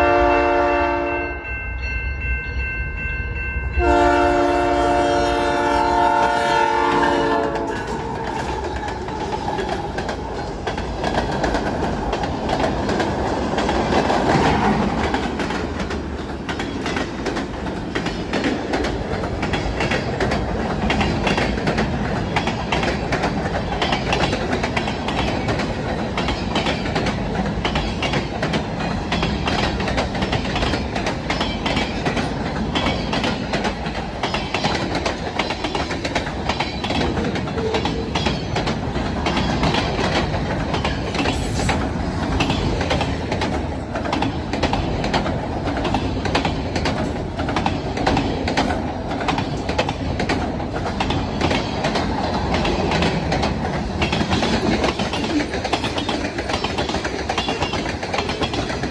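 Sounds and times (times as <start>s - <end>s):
train horn chord: 0.0s - 1.5s, 3.7s - 7.9s
train rolling rumble: 0.0s - 58.9s
wheels clacking on rails: 0.5s - 58.9s.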